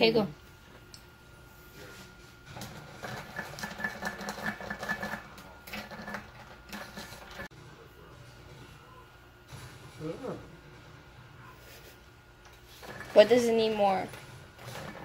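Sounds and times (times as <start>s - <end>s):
whisk beating in metal bowl: 2.7s - 7.5s.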